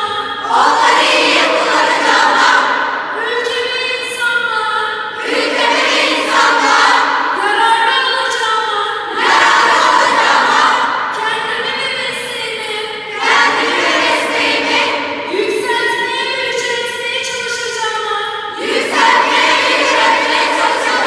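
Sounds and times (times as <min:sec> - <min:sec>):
crowd singing in chorus: 0:00.0 - 0:03.2, 0:05.0 - 0:07.9, 0:08.9 - 0:12.3, 0:12.9 - 0:15.9, 0:18.4 - 0:21.0.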